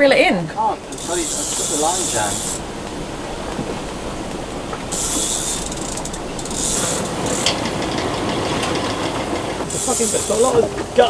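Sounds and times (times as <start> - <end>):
rush of wind and water: 0.0 - 11.0
fishing reel ratcheting: 0.9 - 9.1.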